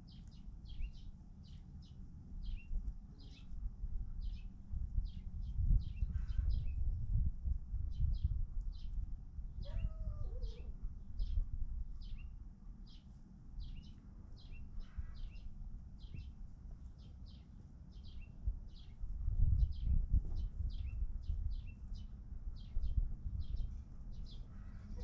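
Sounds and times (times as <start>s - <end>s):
bird chirping: 0.0s - 3.5s, 13.6s - 16.3s
steady low rumble: 0.0s - 25.0s.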